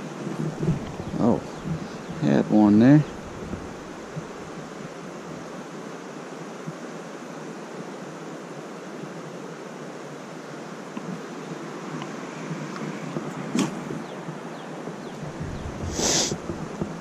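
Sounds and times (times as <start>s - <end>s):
steady rushing noise: 0.3s - 5.4s, 15.2s - 17.0s.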